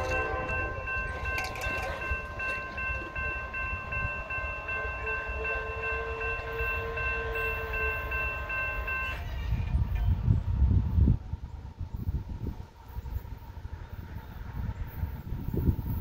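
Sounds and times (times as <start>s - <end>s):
crossing warning bell ringing: 0.0s - 10.4s.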